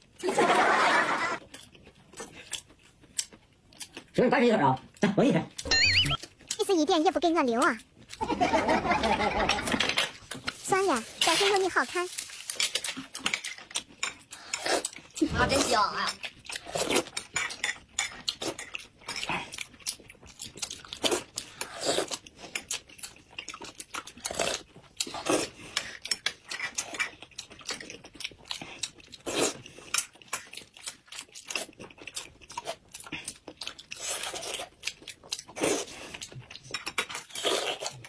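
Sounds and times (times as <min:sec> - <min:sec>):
people slurping soup: 0:14.1 - 0:15.9, 0:21.2 - 0:22.2, 0:37.2 - 0:38.0.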